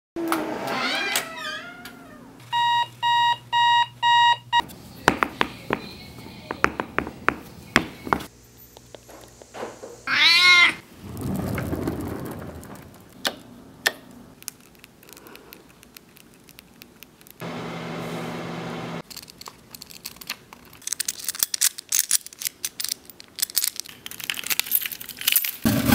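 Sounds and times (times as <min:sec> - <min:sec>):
loud squeaky warbling: 0:00.5 - 0:02.4.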